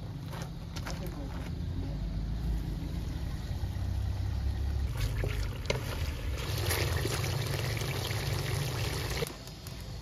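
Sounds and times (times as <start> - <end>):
broth simmering in a pot: 2.9 - 10.0.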